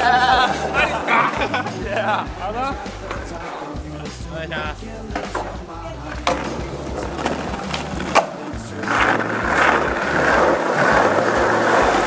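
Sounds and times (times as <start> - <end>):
background music: 0.0 - 12.0
skateboard wheels rolling on concrete: 0.0 - 12.0
skateboard landing clack: 5.1 - 12.0.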